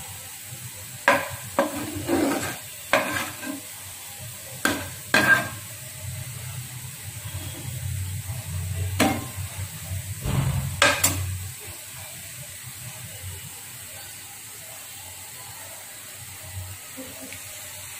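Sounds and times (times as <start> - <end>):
gravy sizzling in a pan: 0.0 - 17.9
spatula stirring in a pan: 1.0 - 3.8, 4.4 - 5.8.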